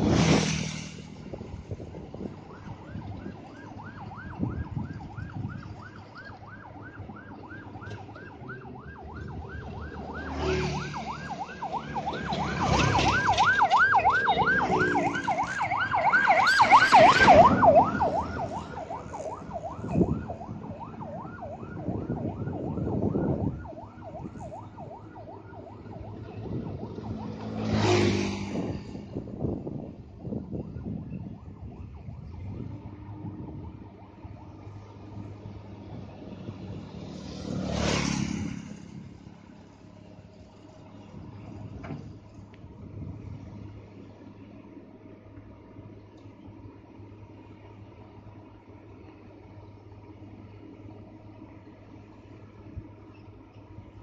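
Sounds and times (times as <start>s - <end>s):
siren warbling: 2.5s - 28.1s.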